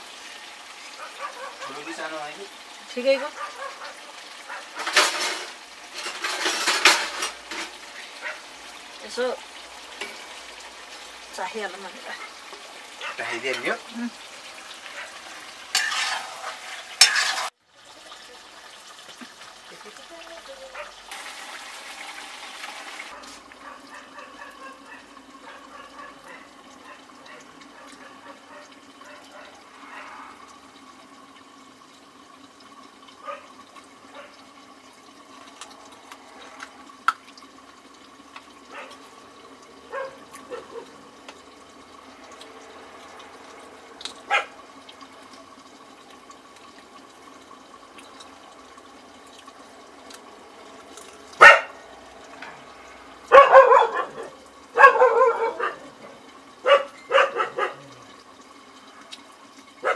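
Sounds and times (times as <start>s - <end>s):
dog barking: 1.0s - 2.0s, 3.2s - 4.9s, 8.2s - 8.5s, 13.0s - 13.4s, 14.9s - 15.2s, 20.7s - 21.0s, 23.1s - 30.2s, 33.2s - 33.5s, 34.1s - 34.4s, 38.7s - 39.0s, 39.9s - 41.0s, 44.3s - 44.6s, 51.4s - 51.8s, 53.3s - 56.0s, 56.6s - 58.0s.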